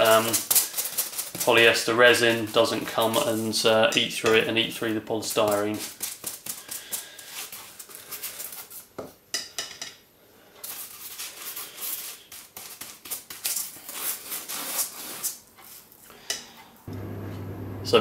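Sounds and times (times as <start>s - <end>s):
scratchy brush strokes on foam: 0.0s - 3.7s, 10.6s - 15.9s.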